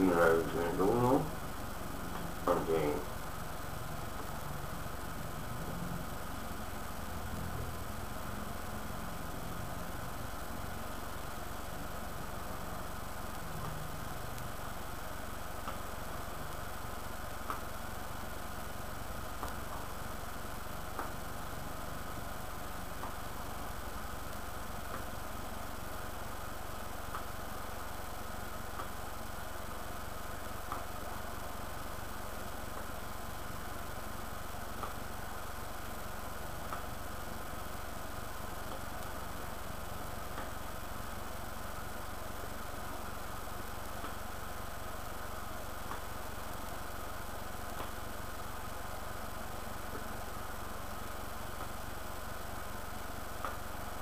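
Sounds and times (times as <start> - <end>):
even hiss: 0.0 - 4.7
room noise hum and hiss: 0.0 - 54.0.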